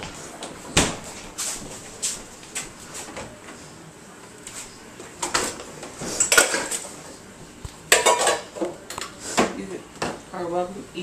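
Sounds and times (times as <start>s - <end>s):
dishes clinking and clattering: 5.2s - 7.0s, 7.9s - 8.8s.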